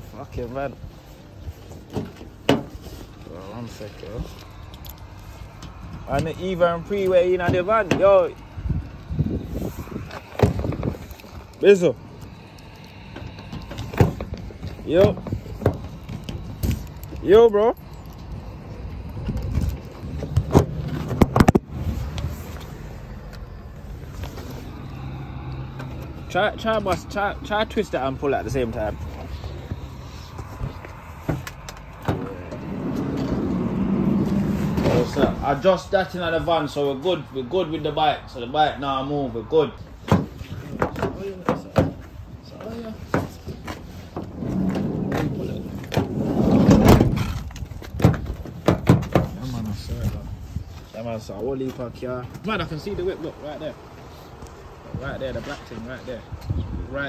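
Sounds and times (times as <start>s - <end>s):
van sliding door shutting: 32.0s - 35.4s, 43.6s - 47.4s
van door knocks and rattles: 47.8s - 49.4s.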